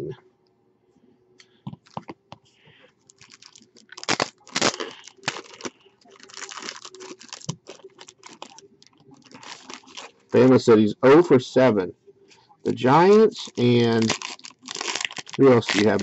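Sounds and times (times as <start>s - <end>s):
foil wrapper crinkling and tearing: 3.1s - 10.2s, 13.3s - 16.0s.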